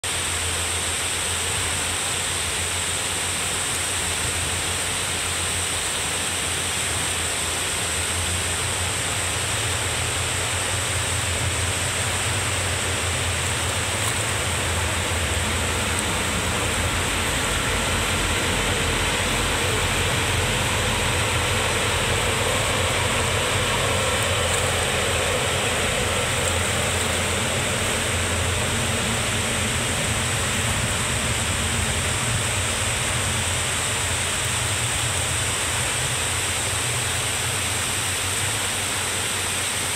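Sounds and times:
water rushing over a weir: 0:00.0 - 0:39.9
low rumble: 0:10.6 - 0:36.2.

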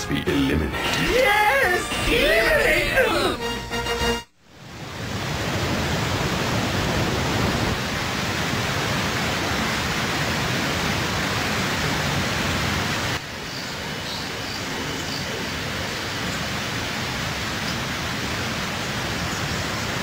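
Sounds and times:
waterfall rushing: 0:04.6 - 0:20.0.

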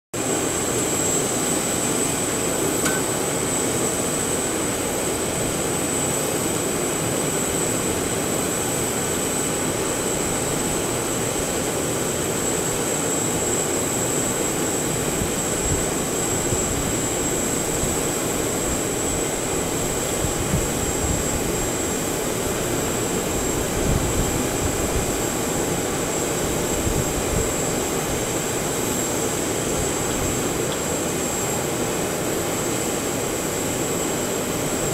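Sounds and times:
jet rush with high whistle: 0:00.3 - 0:04.8.

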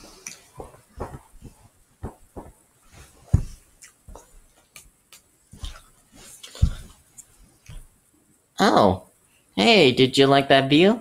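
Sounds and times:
soft knocks and bumps: 0:00.0 - 0:04.7, 0:05.5 - 0:08.0.

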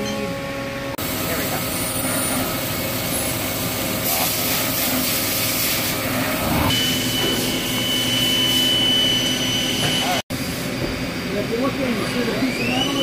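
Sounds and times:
factory machinery running: 0:00.0 - 0:13.0
high-pitched whine: 0:05.3 - 0:10.2.

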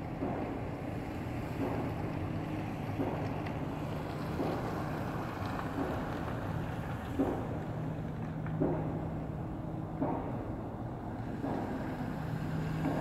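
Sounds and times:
distant pile driver blows: 0:00.0 - 0:13.0
street traffic rumble: 0:00.0 - 0:13.0.

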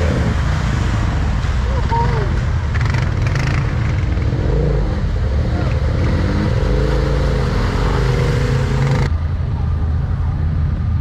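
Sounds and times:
atv engine revving in mud: 0:02.7 - 0:09.1.

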